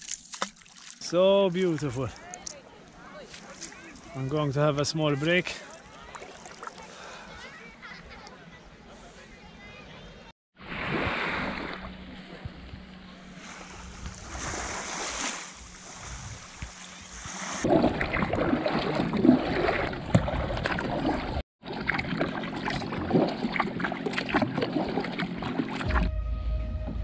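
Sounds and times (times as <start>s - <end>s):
water slapping plastic hull: 0.0s - 1.1s, 5.8s - 6.9s, 16.6s - 26.1s
kayak paddle splashing: 0.0s - 4.5s, 5.2s - 8.0s, 10.6s - 26.1s
calm sea washing on shore: 10.6s - 17.7s.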